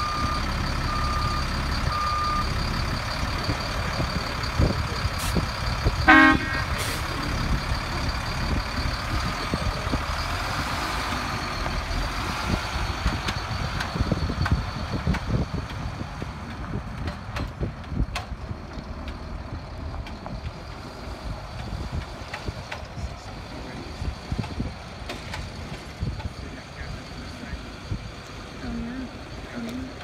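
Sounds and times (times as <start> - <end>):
diesel truck engine rumble: 0.0 - 30.0
short horn toot: 6.1 - 7.0.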